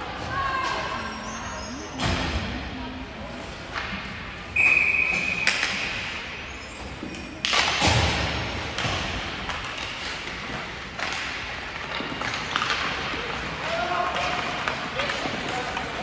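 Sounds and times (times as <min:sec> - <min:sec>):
pucks and sticks hitting boards: 0:03.6 - 0:16.0
referee's whistle blast: 0:04.6 - 0:05.6.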